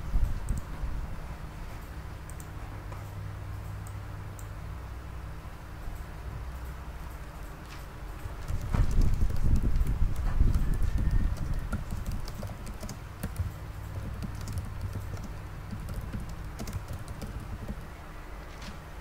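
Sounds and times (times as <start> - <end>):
low rumble of handling noise: 0.0 - 19.0
fingers tapping phone screen: 8.5 - 17.9.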